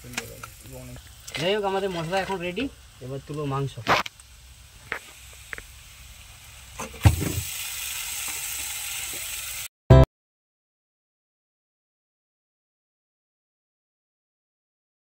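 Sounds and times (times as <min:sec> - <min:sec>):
frying sizzle: 0:00.0 - 0:10.0
chicken thumping into wok: 0:06.8 - 0:07.4.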